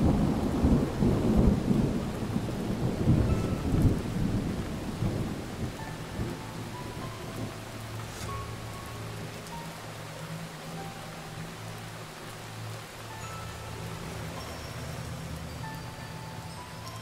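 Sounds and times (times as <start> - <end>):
rolling thunder: 0.0 - 7.6
steady rain: 0.0 - 17.0.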